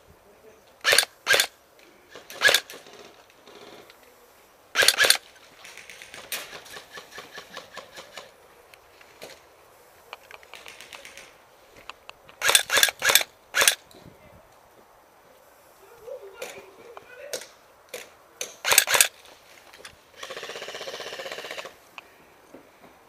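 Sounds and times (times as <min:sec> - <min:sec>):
airsoft gun bursts: 0:00.8 - 0:03.1, 0:04.7 - 0:08.3, 0:12.4 - 0:13.8, 0:18.4 - 0:19.2, 0:20.2 - 0:21.8
faint rapid clicking: 0:10.1 - 0:13.8.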